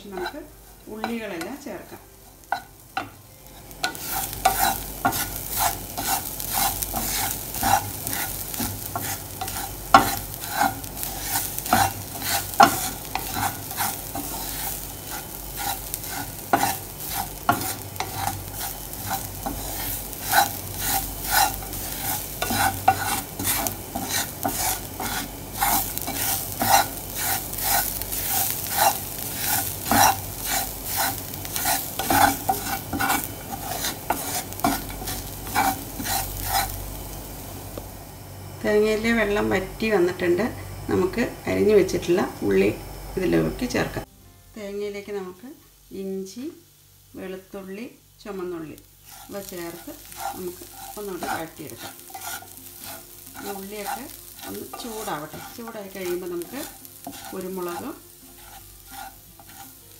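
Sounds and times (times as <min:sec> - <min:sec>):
spatula scraping pan: 0:00.0 - 0:36.8, 0:49.0 - 0:59.9
soft sizzle: 0:00.0 - 0:59.9.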